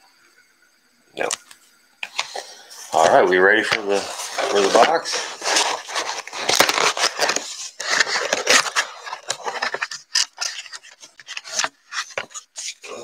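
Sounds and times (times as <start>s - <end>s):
packing paper rustling and crinkling: 2.0s - 13.0s
cardboard box flaps scraping: 4.5s - 12.5s.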